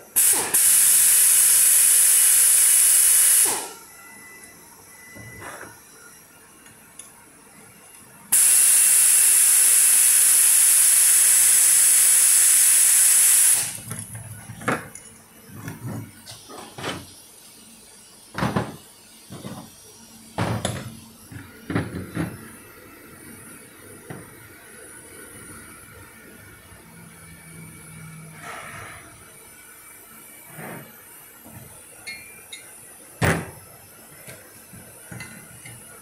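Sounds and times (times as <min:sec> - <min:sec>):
pneumatic drill hissing: 0:00.2 - 0:03.8, 0:08.4 - 0:13.8.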